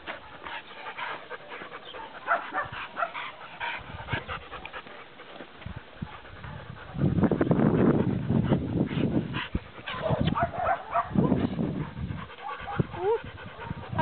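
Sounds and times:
footsteps on dirt track: 0:00.0 - 0:06.5
dogs panting: 0:00.0 - 0:14.0.

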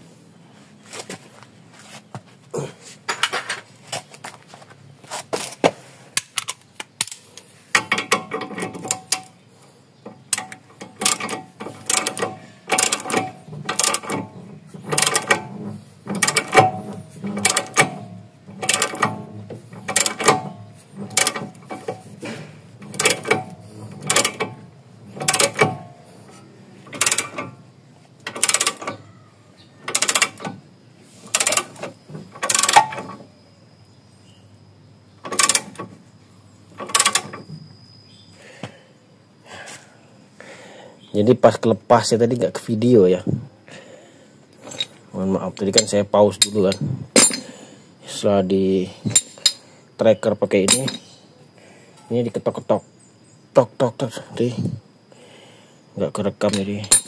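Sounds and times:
ratchet wrench clicking: 0:10.3 - 0:14.2, 0:19.8 - 0:22.0, 0:22.8 - 0:25.8, 0:26.9 - 0:27.5, 0:28.3 - 0:29.0, 0:29.9 - 0:30.5, 0:31.3 - 0:33.1, 0:35.3 - 0:35.8.

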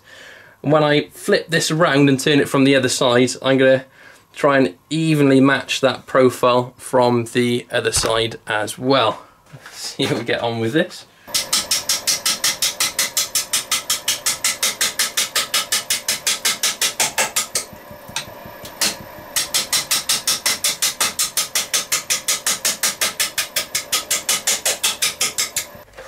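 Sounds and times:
lathe gouge clattering on wood: 0:11.3 - 0:25.8.

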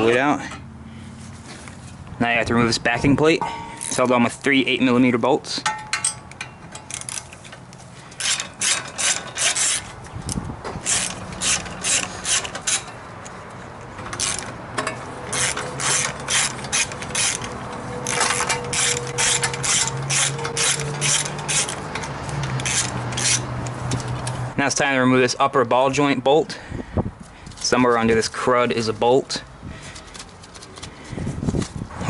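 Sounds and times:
socket ratchet clicking: 0:15.3 - 0:23.4.

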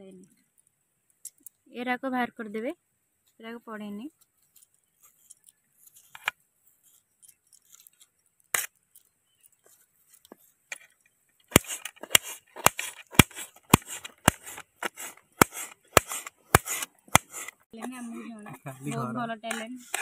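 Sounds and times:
knife chopping on metal plate: 0:11.5 - 0:17.6, 0:19.5 - 0:20.0.

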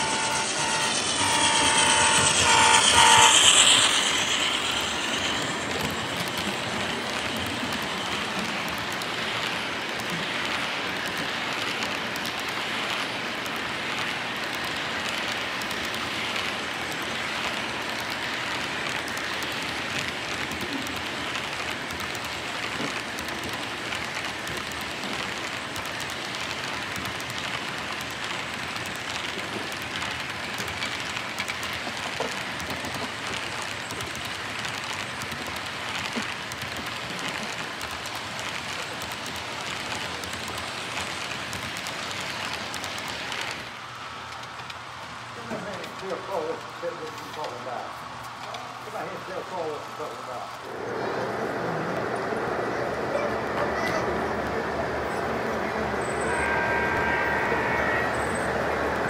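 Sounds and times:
model train wheels clattering: 0:00.0 - 0:44.8.

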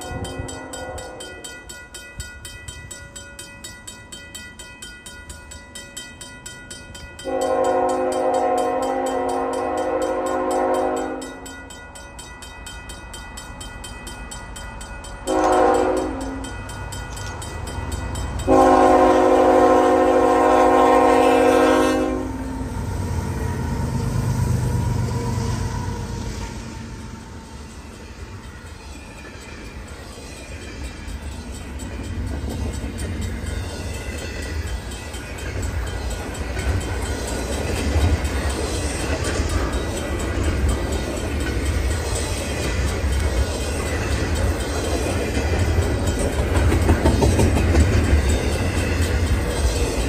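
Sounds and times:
train horn blasts: 0:00.0 - 0:01.3, 0:07.2 - 0:11.5, 0:15.3 - 0:16.5, 0:18.4 - 0:22.9
crossing bell ringing: 0:00.0 - 0:50.0
diesel engines and wheels droning: 0:14.8 - 0:44.6.

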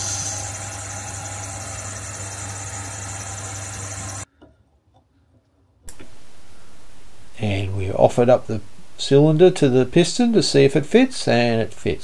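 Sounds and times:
lathe running with motor hum: 0:00.0 - 0:04.2.

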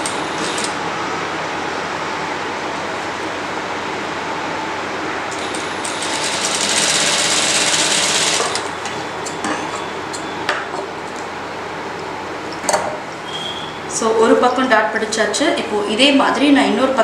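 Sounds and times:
sewing machine stitching: 0:05.4 - 0:08.7.

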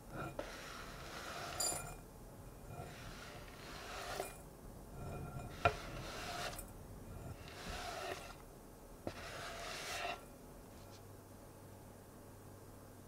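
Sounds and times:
metal scraper scraping cutting board: 0:00.1 - 0:02.0, 0:02.6 - 0:04.4, 0:05.0 - 0:08.4, 0:09.1 - 0:10.2.

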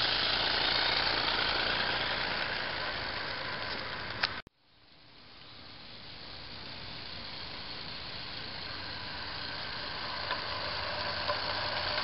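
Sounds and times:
steam locomotive running: 0:00.0 - 0:04.4, 0:05.8 - 0:12.0.

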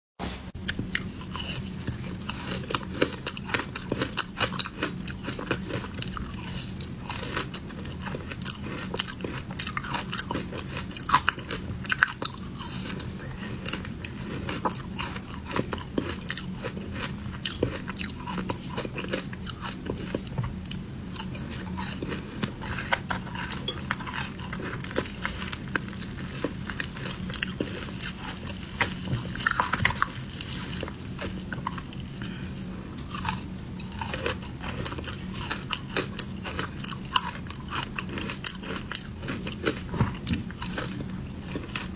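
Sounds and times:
low steady hum: 0:00.2 - 0:41.9
crunching and chewing ice: 0:00.6 - 0:41.9.

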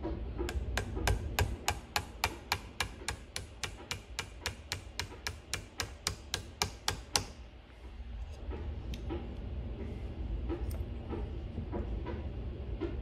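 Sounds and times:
hammer tapping pin punch: 0:00.4 - 0:07.4.

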